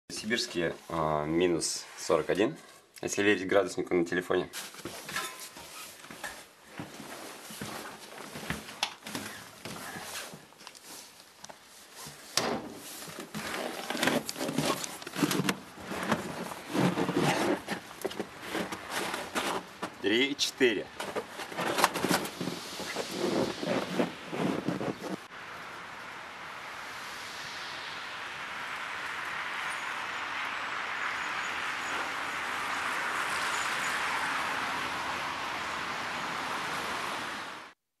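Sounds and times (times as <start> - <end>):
clothing rustle: 4.5 - 25.3
hissing rush of water spray: 22.2 - 37.6.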